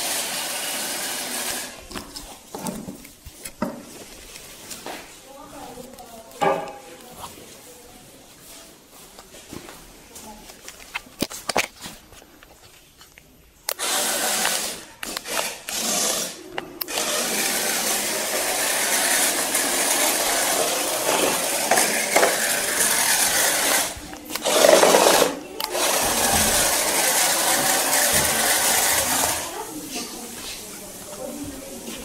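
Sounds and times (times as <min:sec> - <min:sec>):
electric motors whirring: 0:00.0 - 0:01.8, 0:13.7 - 0:29.7.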